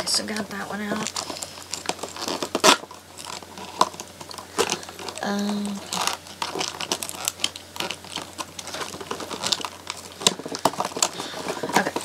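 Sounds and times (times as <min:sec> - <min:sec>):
plastic packaging crackling: 0:00.0 - 0:12.0.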